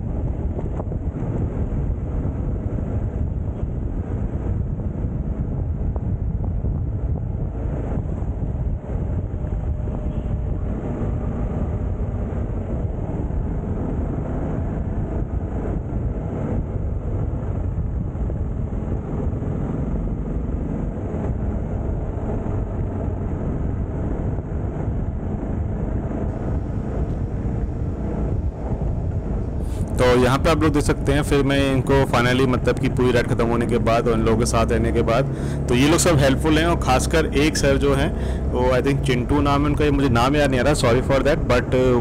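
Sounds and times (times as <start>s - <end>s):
wind rush on microphone: 0.0s - 42.0s.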